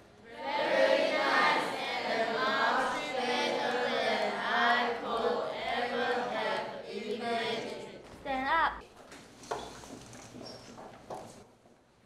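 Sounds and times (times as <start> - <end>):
chorus chanting in unison: 0.2 - 8.0.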